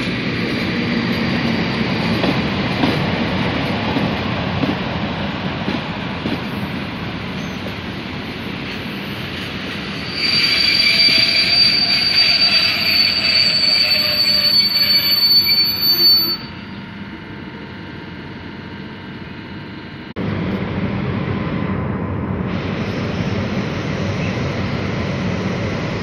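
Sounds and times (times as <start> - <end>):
train coaches rolling on track: 0.0 - 18.4, 22.5 - 26.0
metallic wheel squeal: 9.8 - 16.7.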